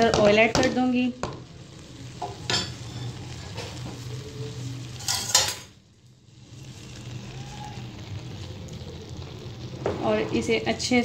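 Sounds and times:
utensils clinking on metal pot: 5.0 - 5.7.

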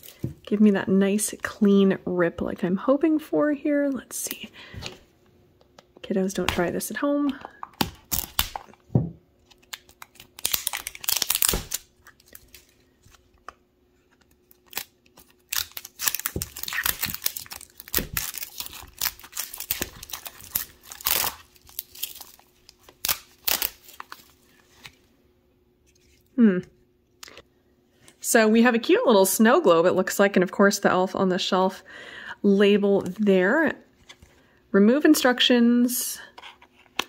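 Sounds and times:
plastic wrapping crinkling: 9.4 - 13.3, 14.1 - 25.0.

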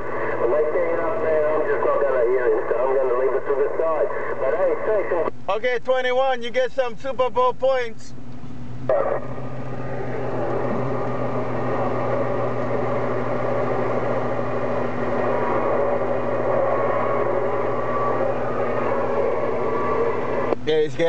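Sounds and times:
radio static hiss: 0.0 - 5.7, 8.9 - 9.4
low hum: 0.0 - 21.0.

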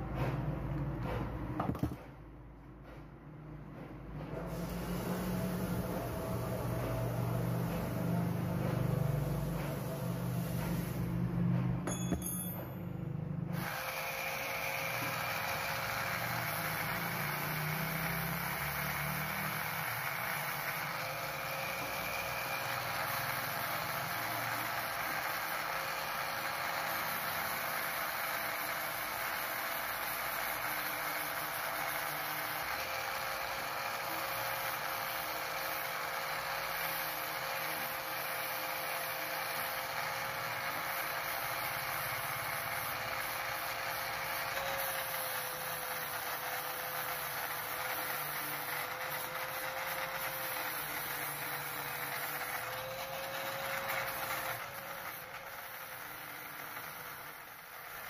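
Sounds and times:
angle grinder grinding metal: 13.5 - 58.0.

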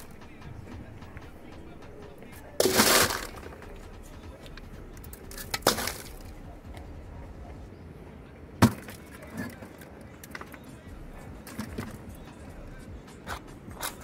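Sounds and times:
firewood knocking in clay oven: 2.6 - 6.4.

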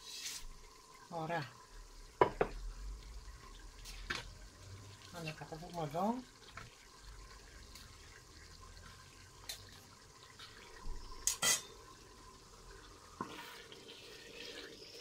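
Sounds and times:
utensils clicking against pots: 11.2 - 11.7.

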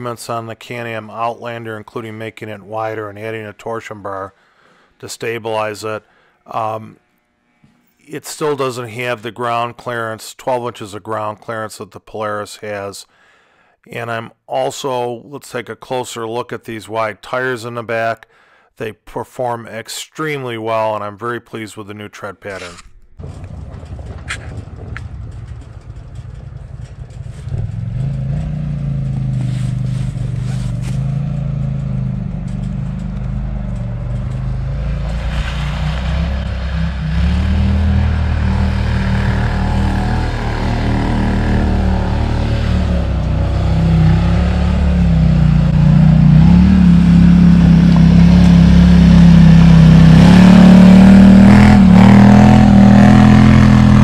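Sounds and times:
atv engine climbing: 22.5 - 54.0.

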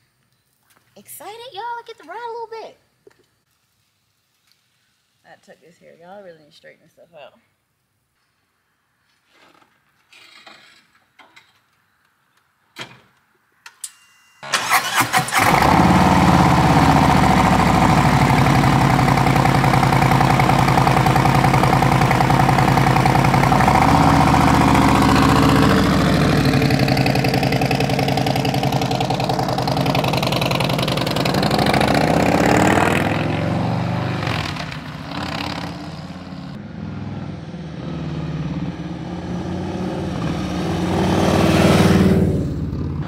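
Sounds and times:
motorcycle starter cranking: 14.4 - 16.1
motorcycle pulling away: 14.5 - 43.0
motorcycle engine idling: 16.0 - 32.3.

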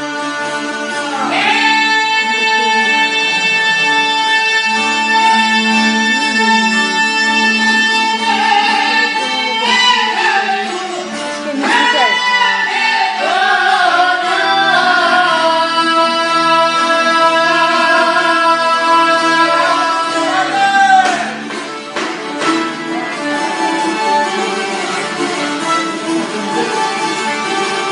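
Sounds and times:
person singing long wavering notes: 0.0 - 11.1
string instrument accompaniment: 0.0 - 27.9.

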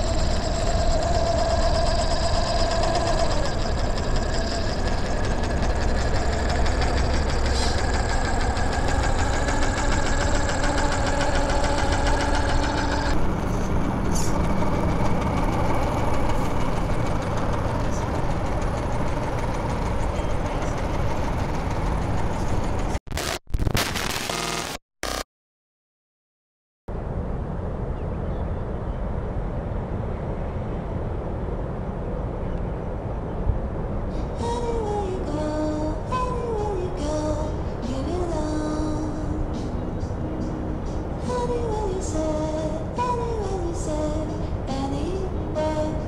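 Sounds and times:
engine idling: 0.0 - 23.0, 34.1 - 46.0.

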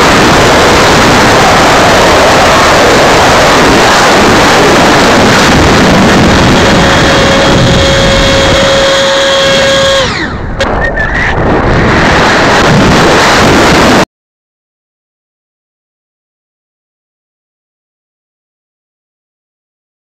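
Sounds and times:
model jet fan whine: 0.0 - 14.0
air rush over microphone: 0.0 - 14.1.

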